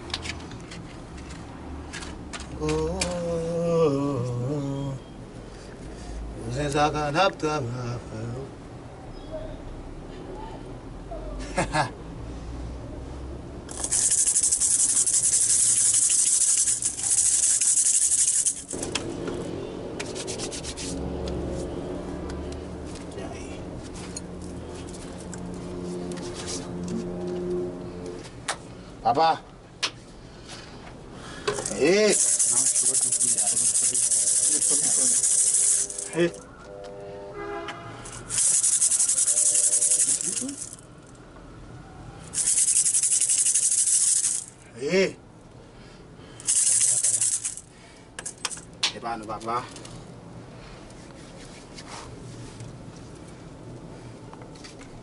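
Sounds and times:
rattle shaken rapidly: 0:13.7 - 0:19.0, 0:31.5 - 0:36.4, 0:38.0 - 0:41.1, 0:42.3 - 0:44.6, 0:46.4 - 0:48.8.

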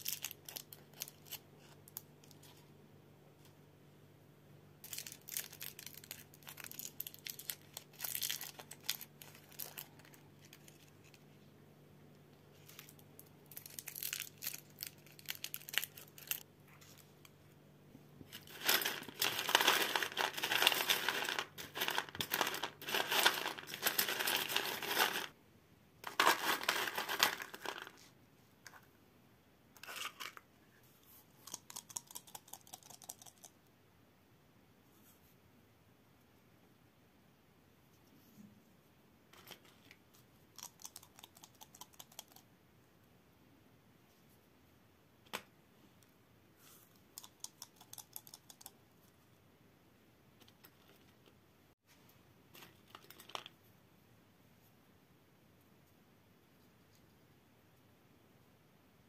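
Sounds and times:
plastic candy wrappers crinkling: 0:00.0 - 0:02.4, 0:04.8 - 0:11.2, 0:12.6 - 0:17.0, 0:18.3 - 0:25.4, 0:26.0 - 0:28.0, 0:52.6 - 0:53.6.

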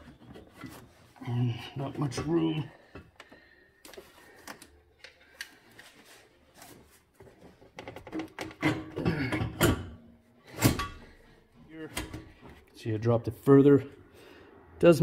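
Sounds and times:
metal pipe clanking and scraping: 0:07.7 - 0:11.3.

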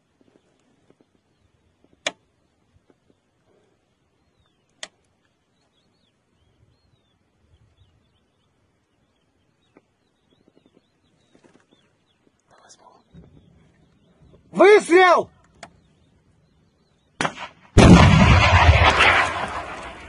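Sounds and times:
small birds chirping: 0:00.0 - 0:17.2
sharp cracks: 0:17.2 - 0:20.0.

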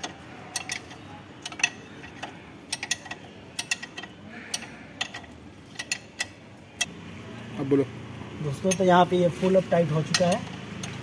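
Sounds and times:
hand wrench clicking: 0:00.0 - 0:06.9, 0:10.0 - 0:11.0.

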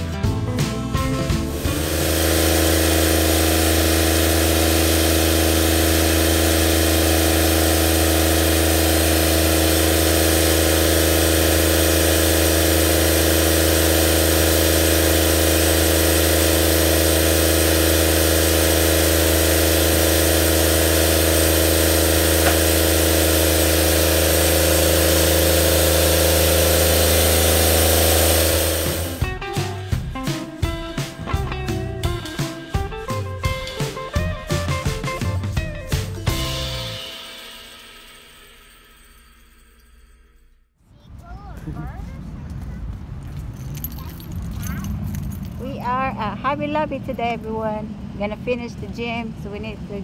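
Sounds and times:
sawmill engine running: 0:00.0 - 0:40.4, 0:41.0 - 0:50.0.

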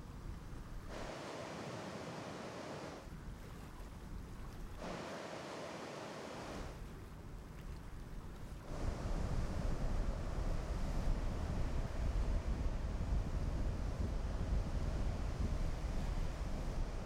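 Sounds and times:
surf washing onto beach: 0:00.9 - 0:03.0, 0:04.8 - 0:06.8
wind rumble on microphone: 0:06.4 - 0:17.0.

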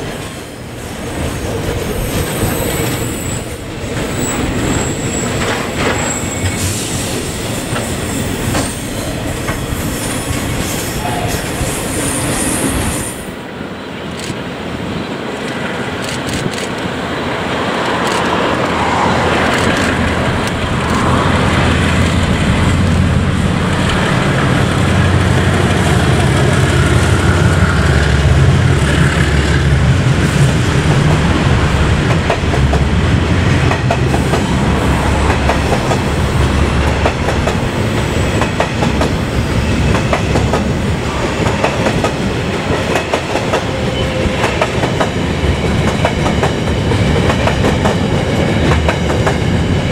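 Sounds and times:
locomotive engine drone: 0:15.4 - 0:42.6
train wheels clicking over rail joints: 0:17.8 - 0:23.0.

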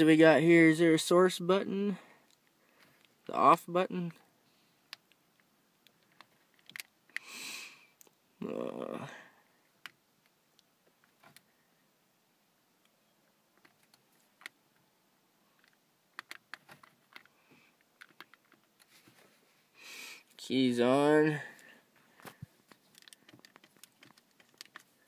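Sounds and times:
breathy noises: 0:21.3 - 0:25.0.

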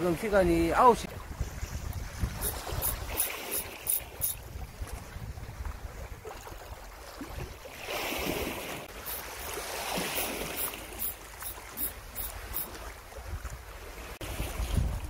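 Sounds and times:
wind rumble on microphone: 0:00.3 - 0:10.6, 0:11.8 - 0:15.0
sea washing against rocks: 0:01.8 - 0:04.6, 0:07.4 - 0:13.0.

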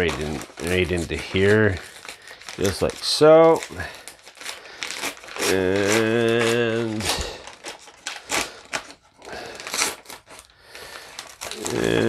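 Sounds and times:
paper bag tearing: 0:00.0 - 0:12.0
man humming a low note: 0:05.4 - 0:07.2, 0:11.6 - 0:12.0.

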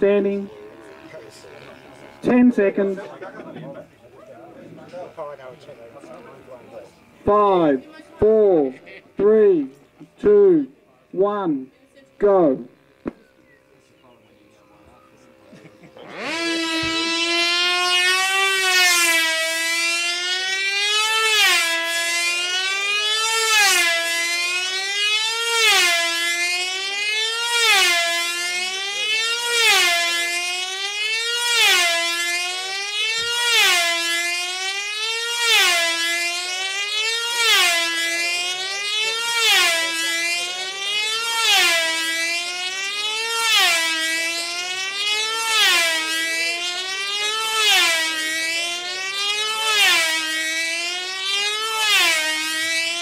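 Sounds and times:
model aircraft engine whine: 0:00.4 - 0:02.3, 0:12.8 - 0:17.9.

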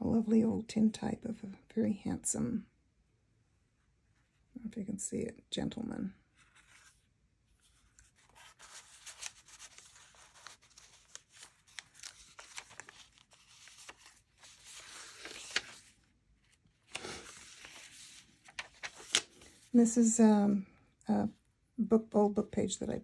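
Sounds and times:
paper pages rustling: 0:06.3 - 0:19.8.

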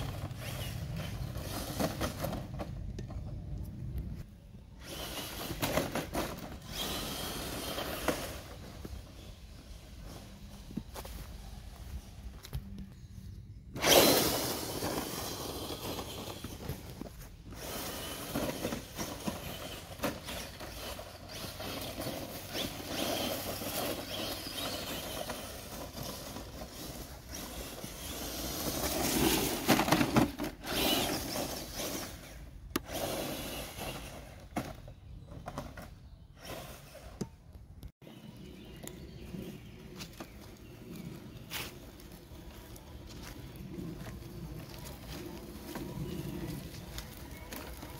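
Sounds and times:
toy car motor whirring: 0:00.0 - 0:02.6, 0:04.8 - 0:09.2, 0:13.8 - 0:34.8, 0:36.4 - 0:37.3
ground crackling under tyres: 0:00.0 - 0:47.9.

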